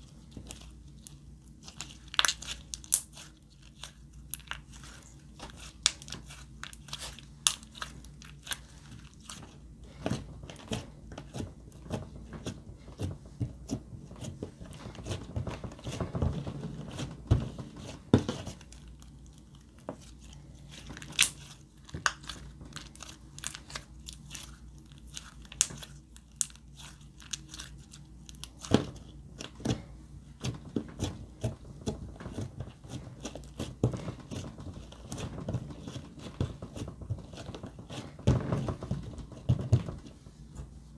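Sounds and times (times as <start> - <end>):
slime squishing with sticky clicks: 0.1 - 12.6, 17.8 - 29.8.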